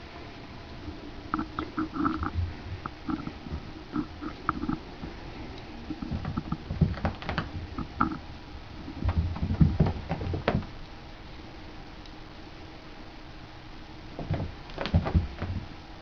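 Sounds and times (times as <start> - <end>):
cat paws thumping on floor: 9.0 - 10.7, 14.2 - 15.6.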